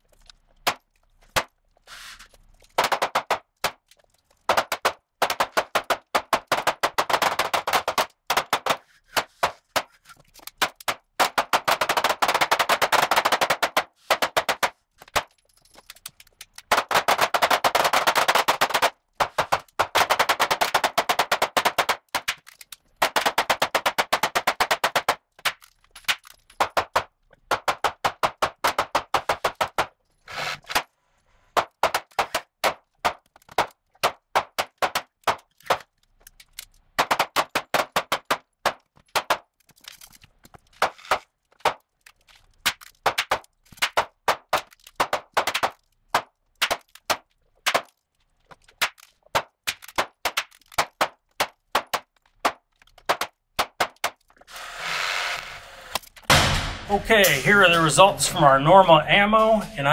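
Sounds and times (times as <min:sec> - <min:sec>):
pistol shots: 0:56.3 - 0:56.9.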